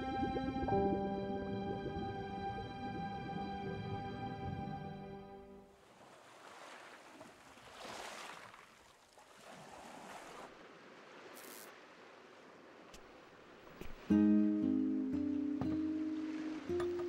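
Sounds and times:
faint sea waves: 0.0s - 17.0s.

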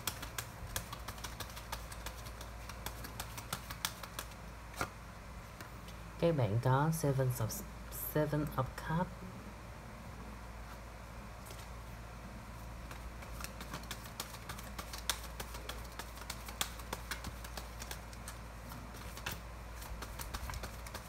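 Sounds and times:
cards shuffling clicks: 0.0s - 4.9s, 12.9s - 21.0s
low steady hum: 0.0s - 21.0s.

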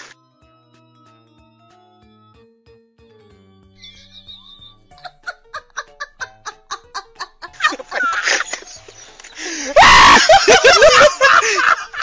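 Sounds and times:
background music of short notes: 0.2s - 5.3s
man laughing: 4.9s - 12.0s.

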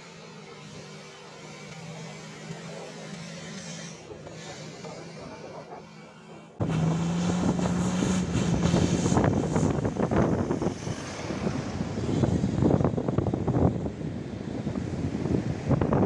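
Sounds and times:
low engine drone: 0.0s - 16.0s
wind buffeting microphone: 6.6s - 16.0s.

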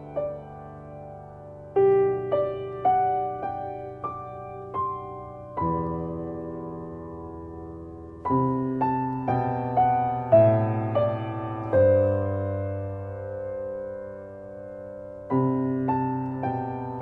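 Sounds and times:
piano chords and notes: 0.0s - 17.0s.

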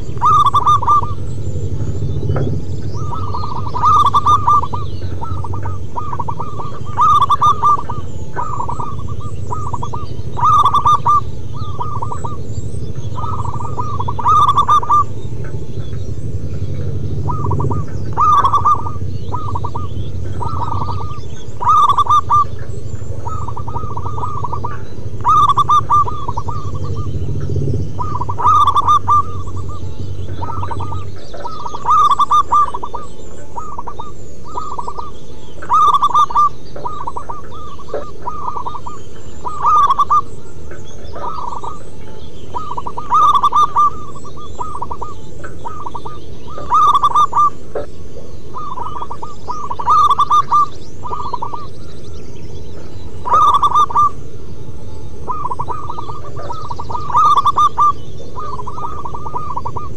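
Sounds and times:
doves cooing: 0.0s - 59.9s
low background rumble: 0.0s - 59.9s.

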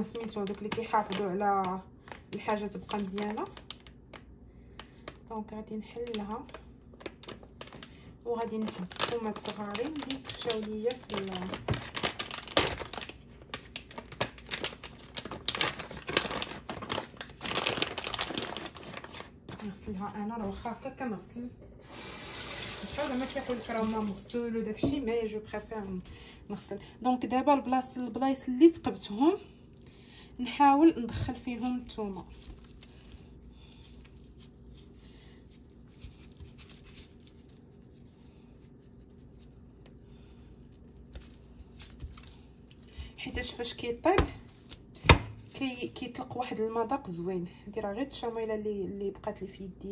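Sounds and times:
plastic bag crinkling: 0.0s - 21.0s, 22.5s - 26.1s, 31.0s - 46.3s
low room hum: 0.0s - 49.9s
gloved hands rubbing and squishing: 6.1s - 21.2s, 31.3s - 46.2s.

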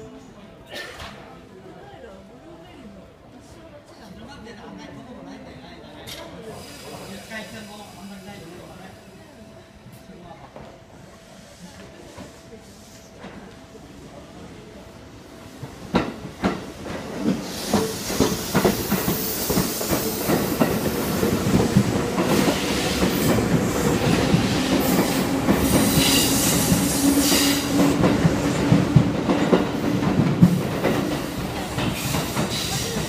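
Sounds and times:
train rumble: 15.5s - 33.0s
electric train wheels clacking: 15.8s - 33.0s.

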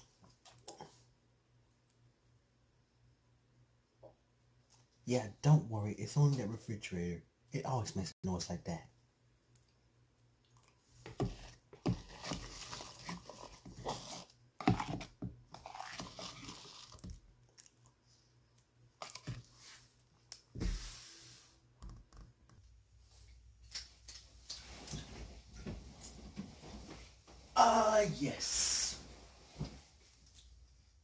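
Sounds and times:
man eating and chewing: 10.4s - 19.6s.

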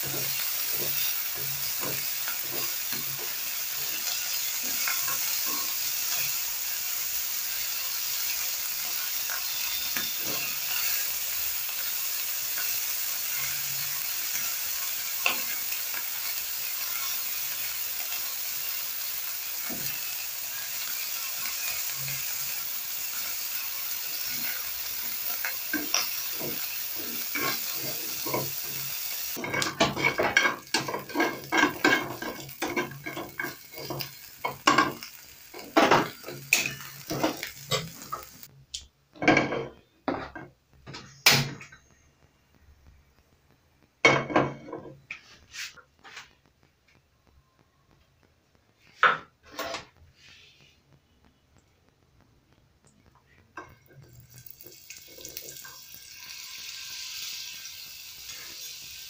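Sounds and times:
chicken sizzling in oil: 0.0s - 38.5s, 53.6s - 59.0s
tongs clattering and scraping: 25.3s - 28.8s, 29.4s - 38.2s.

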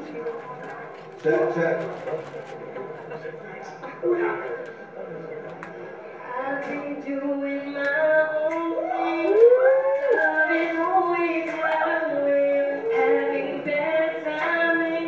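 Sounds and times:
person singing through tv speakers: 6.0s - 15.0s.

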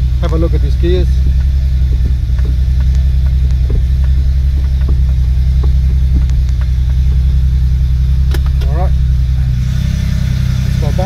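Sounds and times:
car engine idling: 0.0s - 11.0s
gear shifter clicks and clunks: 0.1s - 8.9s.

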